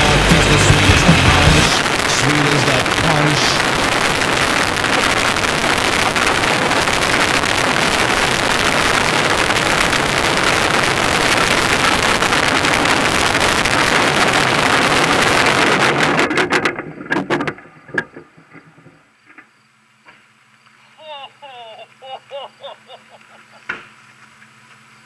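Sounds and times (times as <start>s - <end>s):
cart rattling over ground: 15.3s - 19.5s
clicks and knocks: 16.2s - 19.5s.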